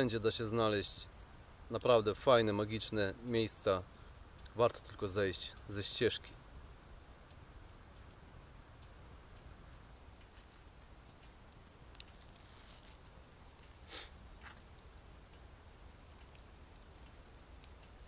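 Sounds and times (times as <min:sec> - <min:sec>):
light ticks: 0:04.1 - 0:06.3, 0:07.2 - 0:18.0.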